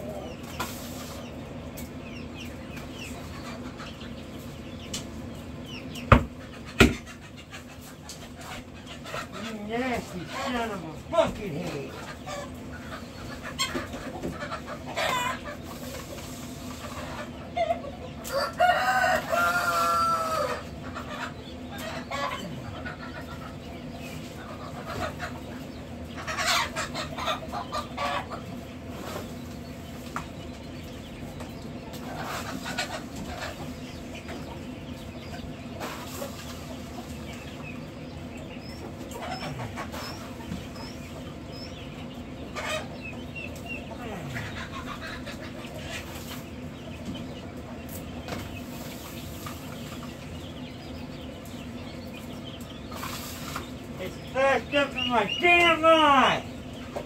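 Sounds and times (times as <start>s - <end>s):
chick peeps: 0.0s - 57.0s
chickens clucking: 0.0s - 57.0s
equipment hum: 0.0s - 57.0s
rooster crowing: 18.3s - 20.6s.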